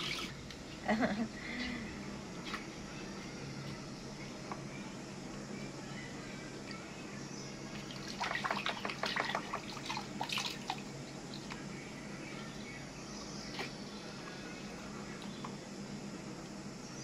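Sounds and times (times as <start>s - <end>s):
hands splashing water in a tub: 7.8s - 10.8s.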